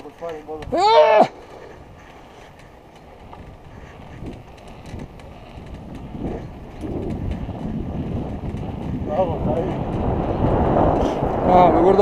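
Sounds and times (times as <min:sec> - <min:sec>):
light clicks and rattles: 0:00.0 - 0:00.8
bicycle tyres rolling on asphalt: 0:00.0 - 0:12.0
wind buffeting microphone: 0:00.0 - 0:12.0.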